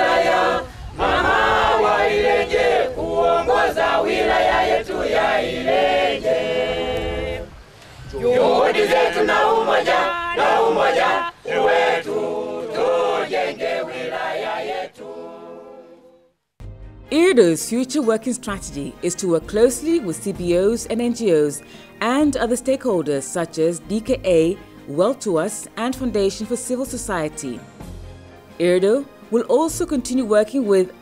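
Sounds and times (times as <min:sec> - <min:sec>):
choir singing unaccompanied: 0:00.0 - 0:16.3.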